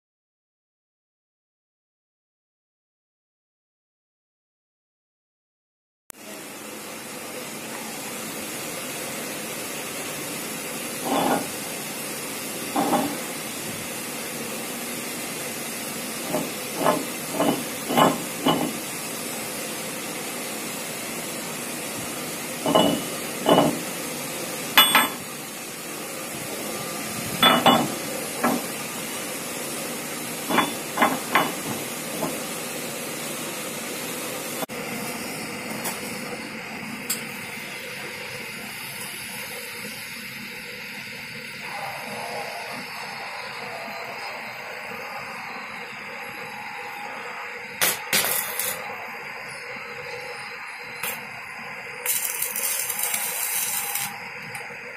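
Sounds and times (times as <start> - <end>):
metal piston knocking on lathe: 16.3 - 18.8
steady hiss: 37.2 - 54.9.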